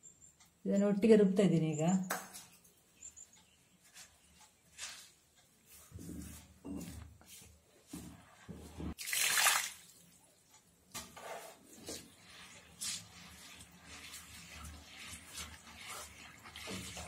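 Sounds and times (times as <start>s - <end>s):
stone grinder grating and swishing: 11.2s - 17.0s.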